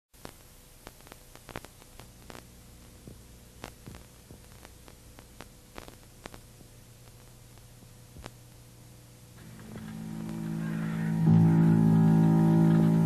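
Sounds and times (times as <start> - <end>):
clicks and pops: 0.2 - 8.4
mains hum: 0.2 - 13.0
steady hiss: 0.2 - 13.0.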